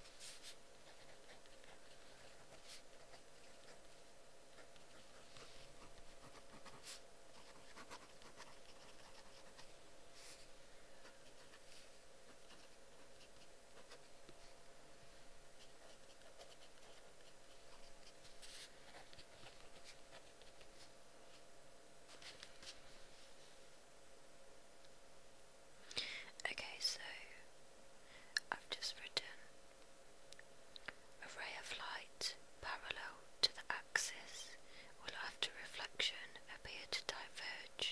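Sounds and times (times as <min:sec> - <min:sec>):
faint steady hum: 0:00.0 - 0:37.9
pen scratching on paper: 0:00.2 - 0:03.9, 0:04.6 - 0:09.7, 0:11.0 - 0:14.1, 0:15.6 - 0:19.0.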